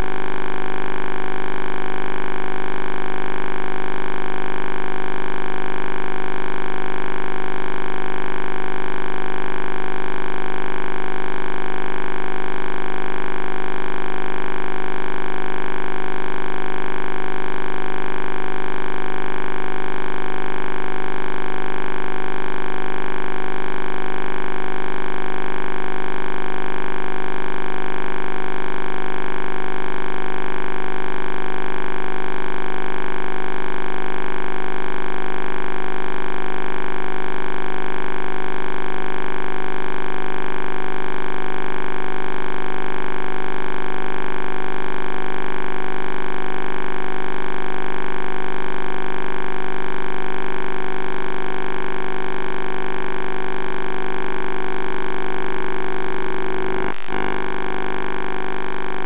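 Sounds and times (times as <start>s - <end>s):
electrical hum and whine: 56.2s - 58.6s
pulsing tone: 56.2s - 58.6s.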